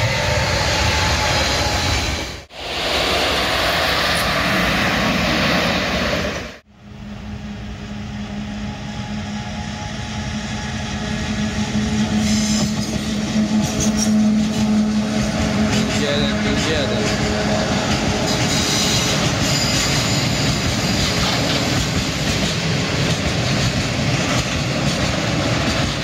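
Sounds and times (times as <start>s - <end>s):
electric locomotive humming: 0.0s - 26.0s
train rail noise: 0.0s - 26.0s.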